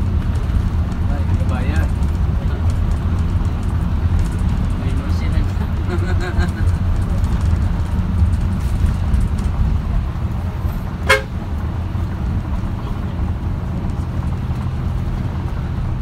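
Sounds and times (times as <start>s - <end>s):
vehicle rumbling: 0.0s - 16.0s
short horn beep: 11.0s - 11.3s.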